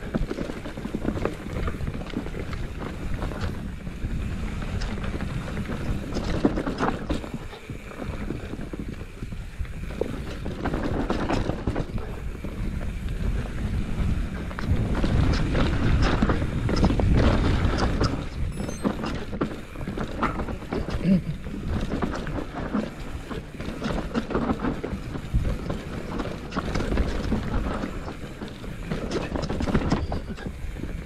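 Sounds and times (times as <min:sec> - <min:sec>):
bike bumping and rattling: 0:00.0 - 0:31.0
wind buffeting microphone: 0:00.0 - 0:31.0.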